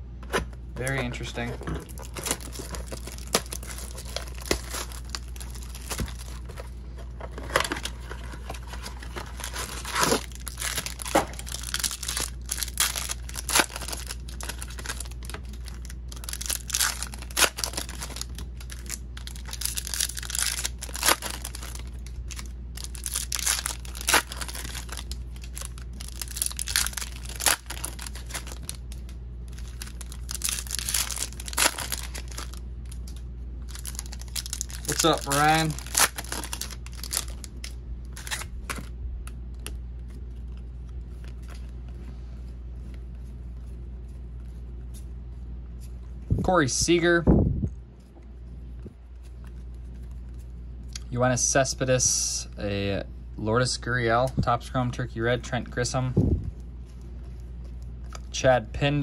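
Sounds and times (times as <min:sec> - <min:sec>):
low steady hum: 0:00.0 - 0:59.0
plastic wrapping tearing and crinkling: 0:01.4 - 0:38.9.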